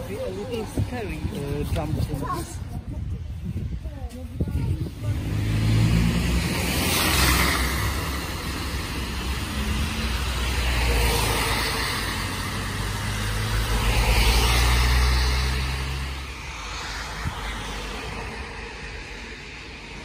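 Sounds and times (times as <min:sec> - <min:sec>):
car engine rumble: 0:03.6 - 0:19.5
tyres hissing on wet road: 0:05.1 - 0:20.0.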